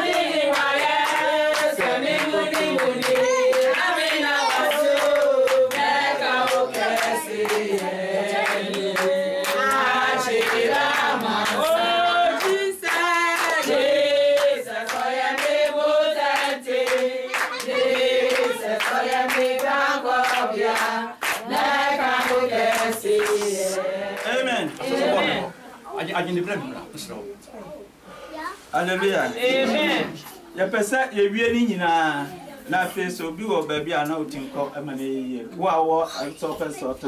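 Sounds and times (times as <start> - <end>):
hands clapping: 0.0 - 11.8, 12.4 - 24.9
group singing in chorus: 0.0 - 25.6.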